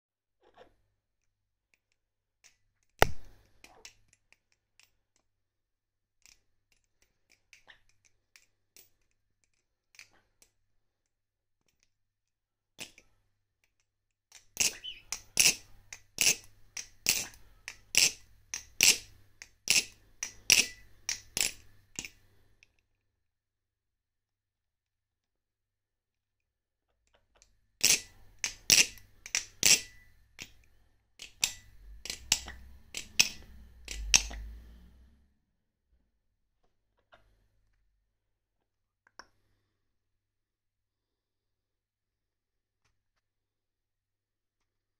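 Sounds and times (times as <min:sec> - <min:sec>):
butterfly knife clacking: 0:14.6 - 0:22.2, 0:27.8 - 0:30.6, 0:31.2 - 0:34.5.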